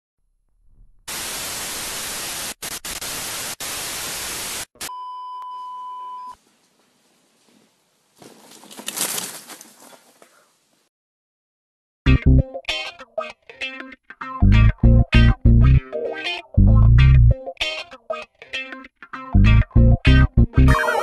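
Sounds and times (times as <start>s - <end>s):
loud static hiss: 1.1s - 4.9s.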